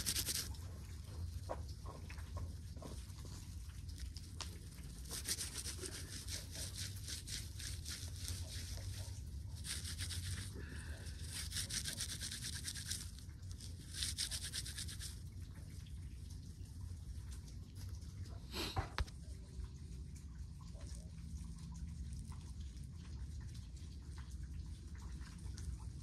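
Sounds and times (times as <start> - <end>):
low steady hum: 0.0 - 26.0
dry plant fibres rustling: 3.9 - 15.1.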